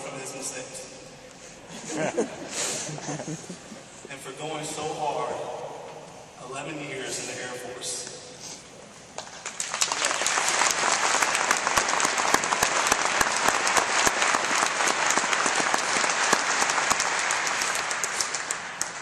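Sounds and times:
audience applauding: 0:09.2 - 0:19.0.

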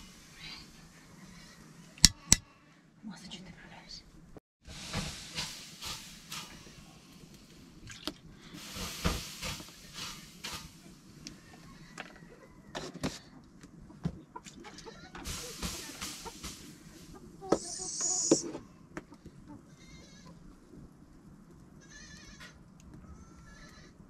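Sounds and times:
soft hiss: 0:03.3 - 0:12.0, 0:15.2 - 0:18.6
wood fire crackling and popping: 0:04.7 - 0:11.4, 0:15.2 - 0:16.9
high-pitched call: 0:17.6 - 0:18.5.

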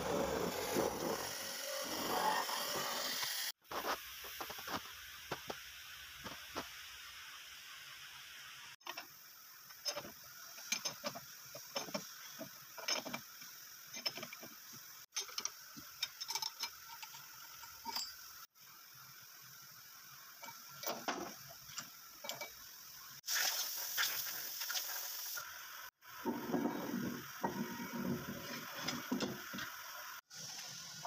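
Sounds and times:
hiss: 0:00.0 - 0:17.6, 0:18.2 - 0:31.0
spanner turning clamp nut: 0:15.1 - 0:18.2.

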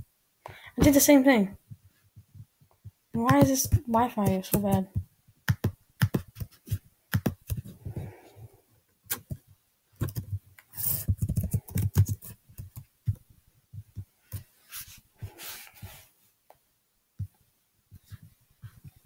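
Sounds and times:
keyboard typing: 0:03.2 - 0:07.6, 0:11.1 - 0:12.9.

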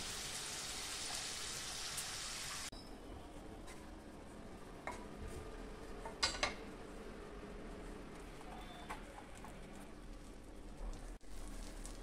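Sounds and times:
butter sizzling in iron pan: 0:00.0 - 0:02.7, 0:11.0 - 0:12.0
corn deep-frying in oil: 0:00.0 - 0:04.0, 0:04.6 - 0:12.0.

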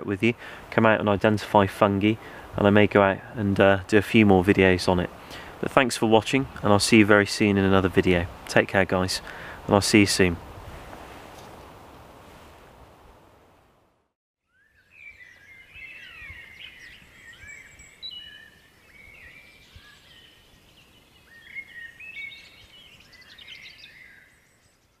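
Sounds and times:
outdoor background hiss: 0:00.0 - 0:25.0
songbirds singing: 0:14.4 - 0:25.0.

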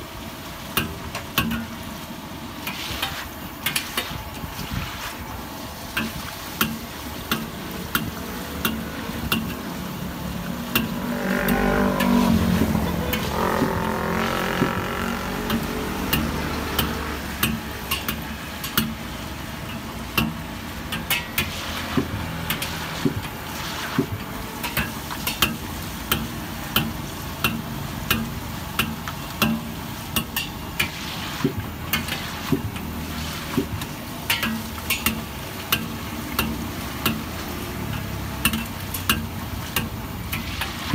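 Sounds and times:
food sizzling in hot oil: 0:00.0 - 0:40.9
ladle tapping against wok: 0:06.0 - 0:09.6, 0:24.0 - 0:32.9, 0:33.5 - 0:40.8
droning sound: 0:08.2 - 0:17.8.

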